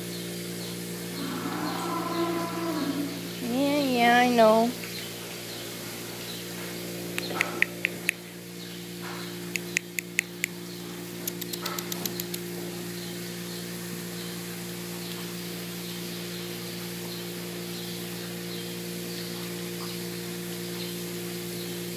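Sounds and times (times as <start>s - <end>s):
milking equipment humming: 0.0s - 21.9s
sharp clicks: 11.2s - 12.4s.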